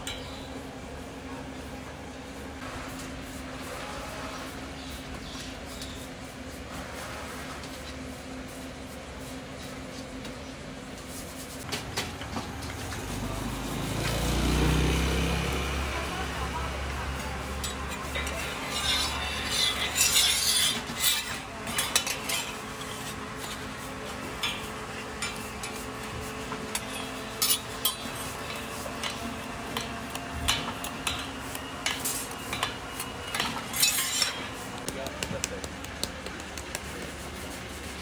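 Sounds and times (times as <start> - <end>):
metal spatulas scraping griddle: 2.8 - 8.0, 16.2 - 34.9.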